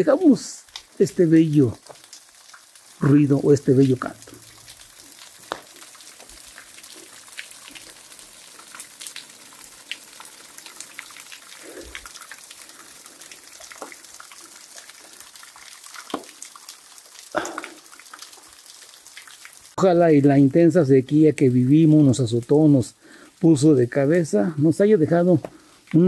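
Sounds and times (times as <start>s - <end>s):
waterfall splashing on rock: 0.0s - 19.8s
water dripping: 0.0s - 26.0s.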